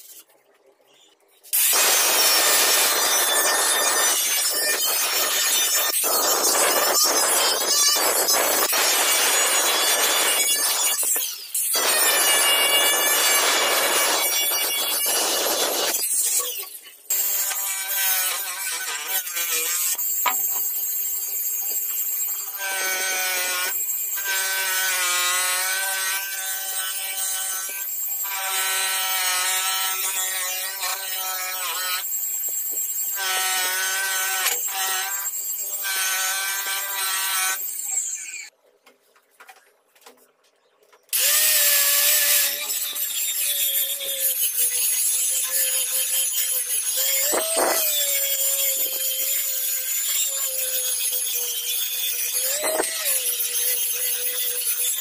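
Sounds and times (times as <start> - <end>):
angle grinder polishing steel: 1.6 - 20.6, 41.2 - 55.0
bench grinder motor whining: 46.8 - 51.1, 51.9 - 54.8.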